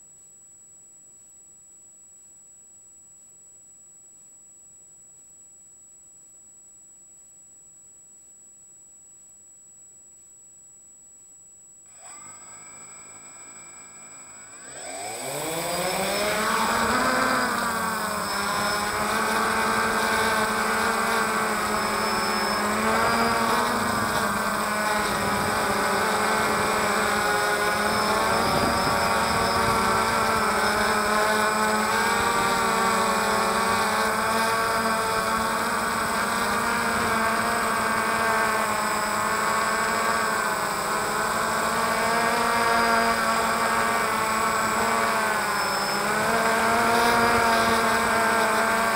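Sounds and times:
drone motors whining: 11.9 - 48.9.

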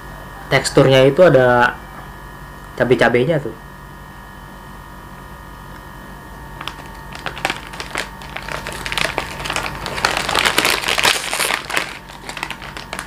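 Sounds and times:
electrical hum: 0.0 - 13.0
plastic wrapper crinkling: 6.6 - 13.0.

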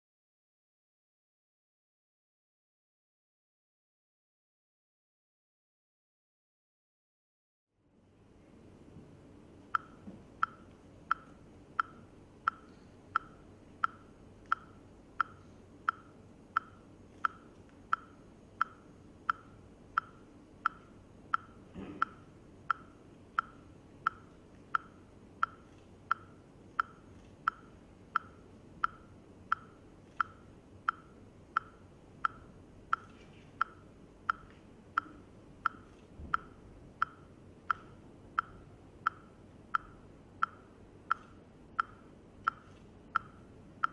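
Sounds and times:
faint room noise: 7.7 - 43.9
metronome-like ticking: 9.8 - 43.9.

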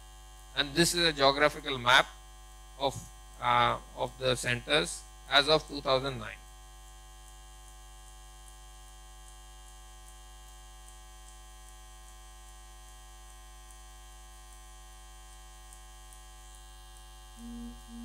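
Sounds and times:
electrical mains hum: 0.0 - 18.0.

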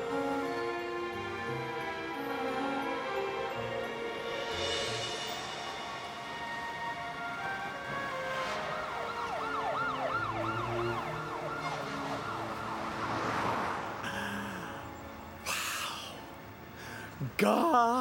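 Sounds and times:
background music: 0.0 - 18.0
siren wailing: 6.4 - 13.0.

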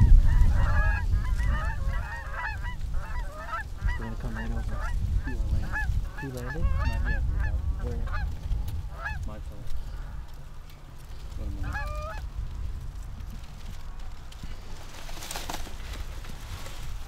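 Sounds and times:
geese honking: 0.0 - 12.3
low wind rumble: 0.0 - 17.0.

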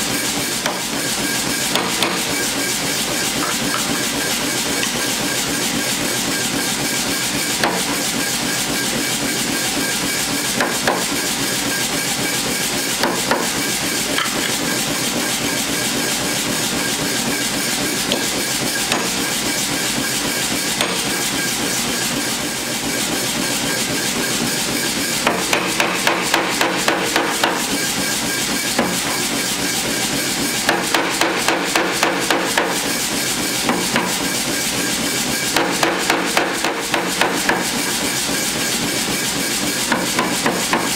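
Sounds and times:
loud machine running noise: 0.0 - 40.9
power hammer striking steel: 0.5 - 5.6, 7.5 - 8.0, 13.0 - 14.7, 18.1 - 19.4, 20.6 - 21.5, 25.1 - 29.3, 30.5 - 34.4, 35.4 - 38.1, 39.8 - 40.9.

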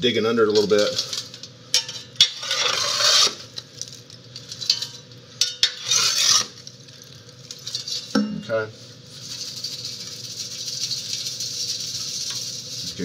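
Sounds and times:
metal shovel scraping in stove: 0.7 - 3.6, 4.5 - 6.7.

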